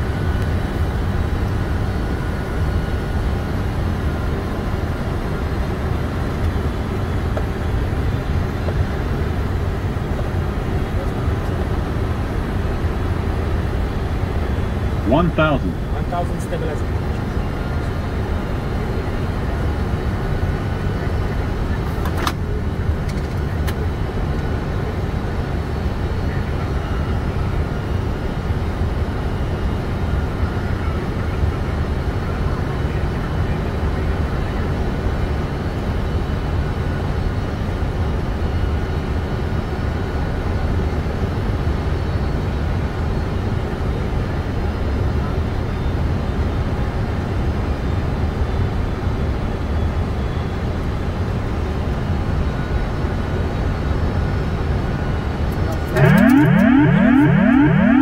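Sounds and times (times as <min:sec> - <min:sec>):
faint steady whine: 0:00.0 - 0:22.0, 0:47.6 - 0:58.0
airflow and engine rumble: 0:00.0 - 0:58.0.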